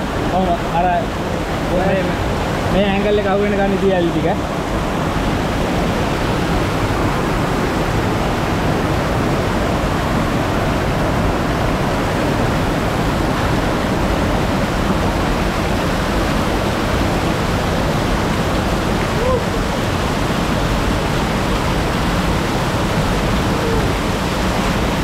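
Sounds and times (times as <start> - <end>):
waterfall rushing: 0.0 - 25.0.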